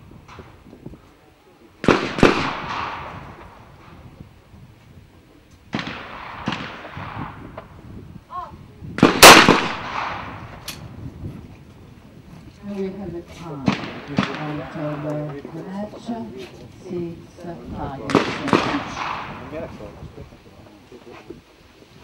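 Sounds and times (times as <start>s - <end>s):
shotgun shots echoing: 1.8s - 4.0s, 5.7s - 7.7s, 9.0s - 10.8s, 13.6s - 15.4s, 18.0s - 19.9s.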